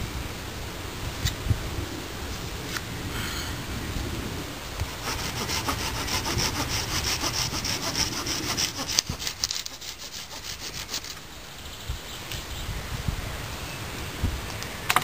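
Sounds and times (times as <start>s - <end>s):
hand saw cutting wood: 4.8s - 11.2s.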